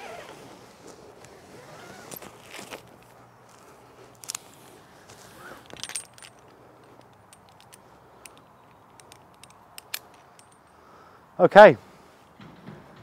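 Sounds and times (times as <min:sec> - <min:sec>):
climbing hardware clinking: 0:05.1 - 0:10.8.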